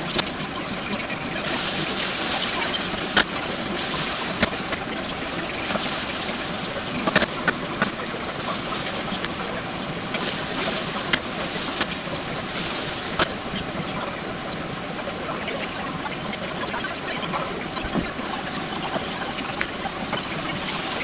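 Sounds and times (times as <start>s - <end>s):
onions sizzling in a frying pan: 0.0s - 14.0s, 18.1s - 21.0s.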